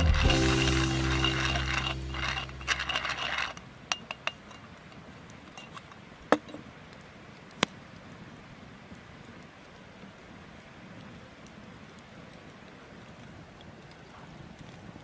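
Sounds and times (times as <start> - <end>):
background music: 0.0 - 3.5
metal tin clicking and clinking: 0.1 - 4.7, 5.5 - 6.6.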